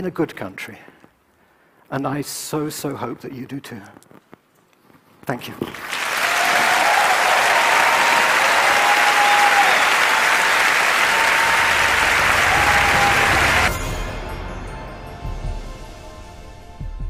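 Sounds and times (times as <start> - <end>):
audience applauding: 5.7 - 13.8.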